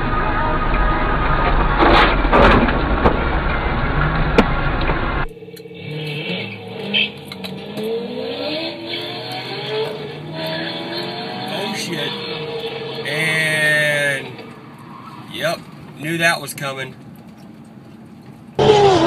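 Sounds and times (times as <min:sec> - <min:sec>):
car engines revving: 0:00.0 - 0:19.0
road and traffic noise: 0:00.0 - 0:19.0.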